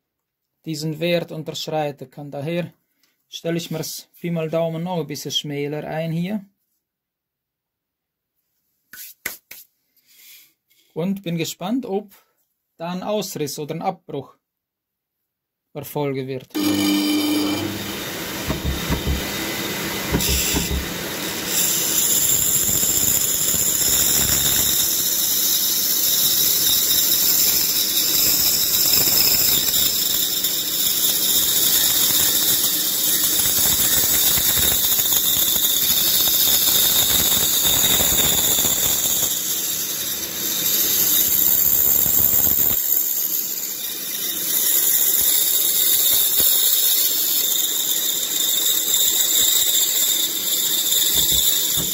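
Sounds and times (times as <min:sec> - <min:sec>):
band saw cutting wood: 0:16.5 - 0:51.9.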